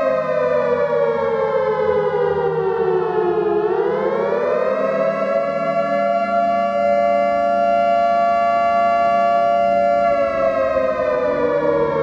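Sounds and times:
civil defense siren winding down: 0.0s - 12.0s.

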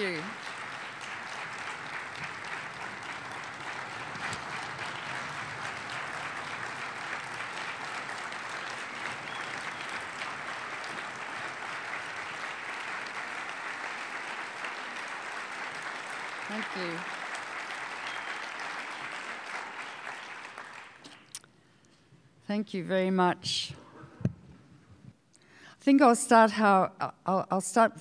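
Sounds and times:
audience applauding: 0.0s - 21.4s.

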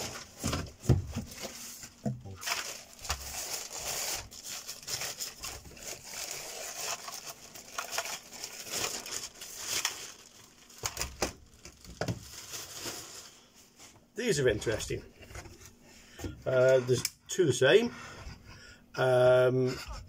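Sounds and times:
plastic bag crinkling: 1.2s - 13.5s.

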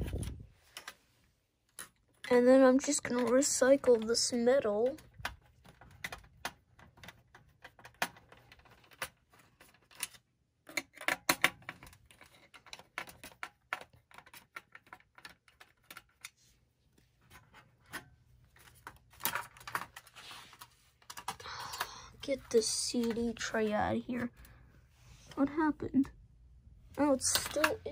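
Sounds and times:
plastic and metal parts clicking: 1.7s - 16.4s, 17.2s - 23.4s, 27.2s - 27.9s.

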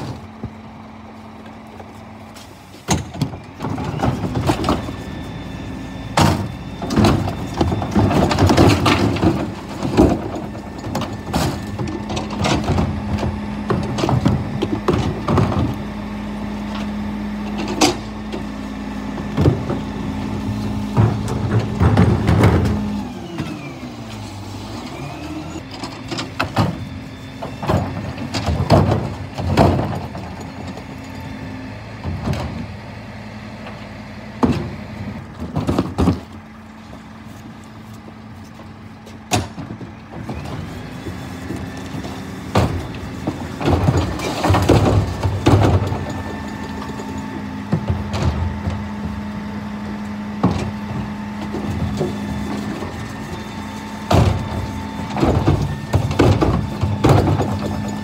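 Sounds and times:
bins clanking and banging: 0.0s - 0.7s, 1.3s - 32.9s, 34.4s - 37.6s, 38.4s - 58.0s
diesel engine running: 0.0s - 58.0s
hydraulics humming: 0.0s - 58.0s.

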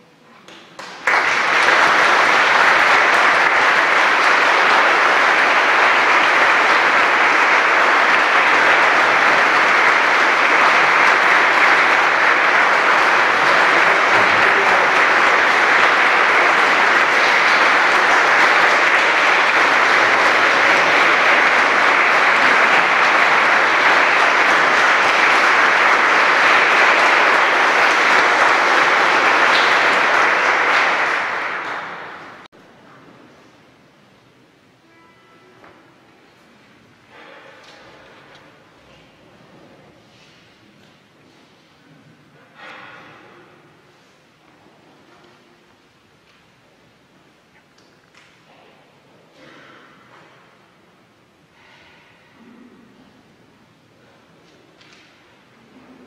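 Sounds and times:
audience applauding: 0.8s - 32.5s.

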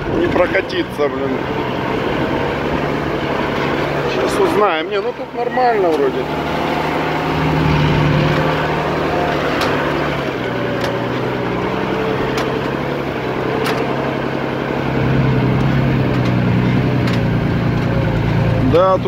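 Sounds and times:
vehicle engine running under load: 0.0s - 19.0s
vehicle body knocking over bumps: 7.4s - 18.4s.

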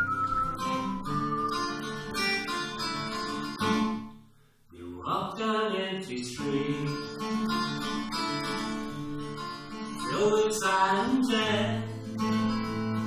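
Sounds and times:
acoustic guitar playing: 0.0s - 4.6s, 6.1s - 13.0s.

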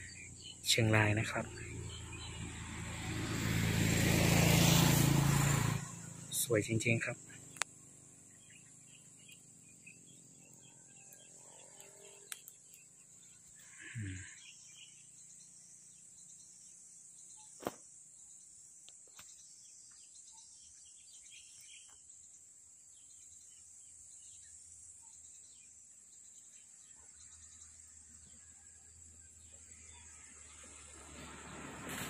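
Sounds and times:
crickets trilling: 0.0s - 32.0s
small chirps: 7.0s - 16.4s.

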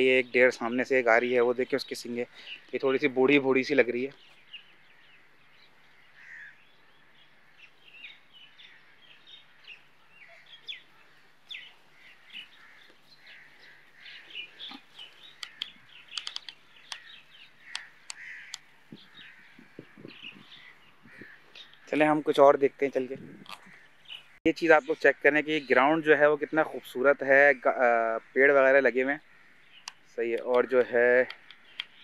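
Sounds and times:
small birds chirping: 0.0s - 32.0s
crows cawing: 4.6s - 22.0s, 27.9s - 32.0s
sharp clicks: 14.6s - 18.7s, 29.8s - 32.0s.

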